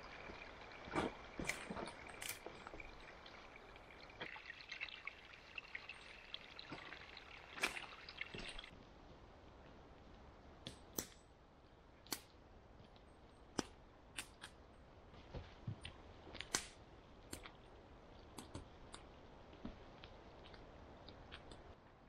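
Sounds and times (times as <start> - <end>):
water splash: 0.0 - 8.7
water trickling and pouring: 0.0 - 8.8
sharp knocks and snaps: 10.6 - 11.2, 12.0 - 14.6, 15.2 - 21.8.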